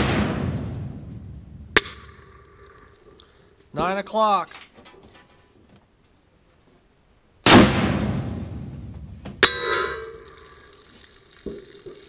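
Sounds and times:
rifle shot with echo: 0.0 - 1.1, 7.4 - 10.0
bullet hitting metal target: 1.8 - 2.8, 9.4 - 10.2.

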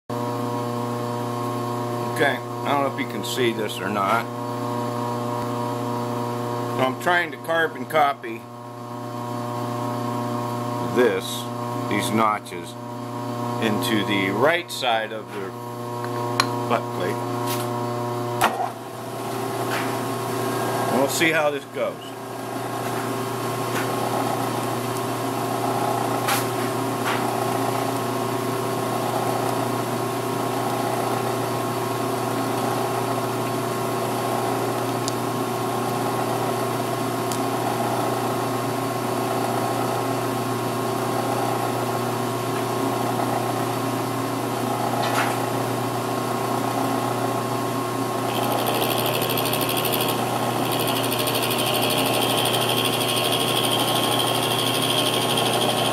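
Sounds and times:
milling machine humming: 15.2 - 28.0, 46.5 - 55.9
high machine whine: 48.2 - 55.9.

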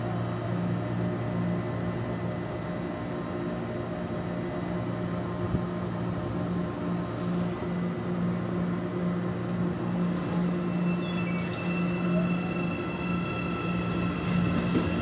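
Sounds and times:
electric train humming: 0.0 - 15.0.

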